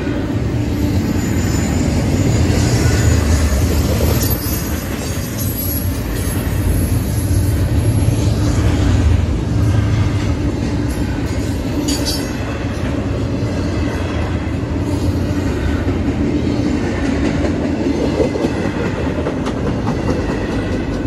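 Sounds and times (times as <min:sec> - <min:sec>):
train wheels rumbling on track: 0:00.0 - 0:21.0.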